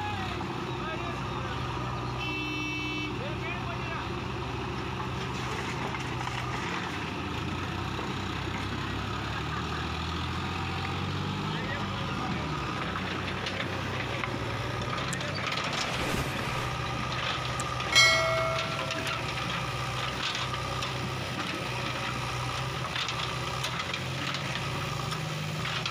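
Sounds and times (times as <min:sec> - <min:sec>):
tractor diesel engine running: 0:03.3 - 0:25.9
loud ringing tone: 0:17.9 - 0:19.6.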